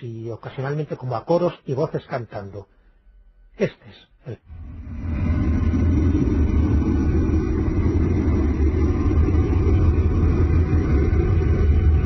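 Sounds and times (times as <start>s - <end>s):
low wind-like noise: 4.5s - 12.0s.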